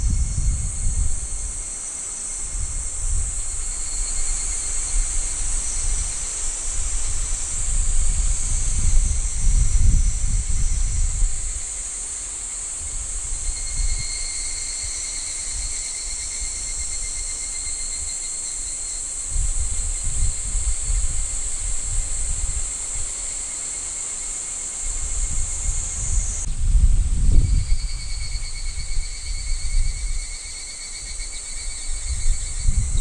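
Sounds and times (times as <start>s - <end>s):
wind buffeting microphone: 0.0s - 1.6s, 2.4s - 11.8s, 19.3s - 22.8s, 24.9s - 30.4s, 31.6s - 33.0s
pulsing insect trill: 0.0s - 26.6s, 27.3s - 33.0s
insect chorus drone: 0.0s - 33.0s.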